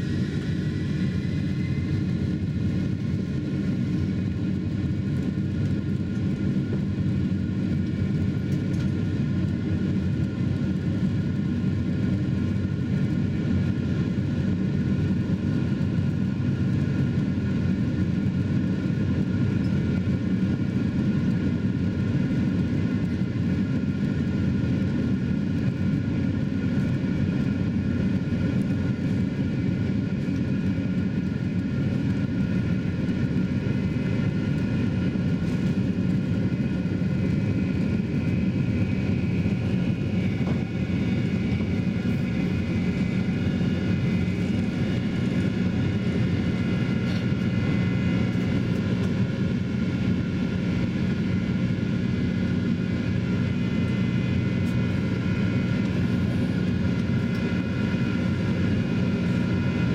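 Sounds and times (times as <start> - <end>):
high engine whine: 0.0 - 59.9
jet engines roaring: 0.0 - 59.9.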